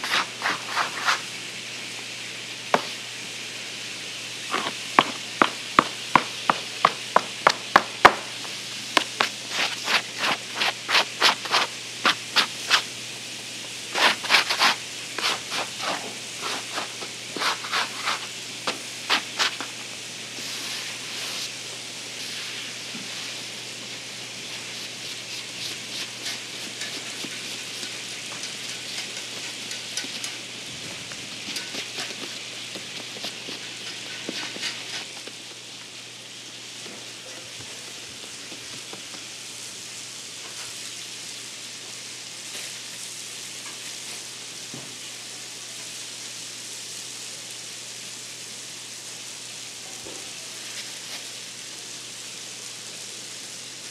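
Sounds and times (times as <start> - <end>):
hands rubbing dough: 0.0 - 1.3, 9.0 - 12.9, 13.9 - 19.8, 24.5 - 27.9
scraper scraping dough: 0.0 - 1.3, 9.1 - 12.9, 13.9 - 18.3, 19.1 - 19.7, 24.5 - 27.9, 33.0 - 35.2
steady background hiss: 0.0 - 53.9.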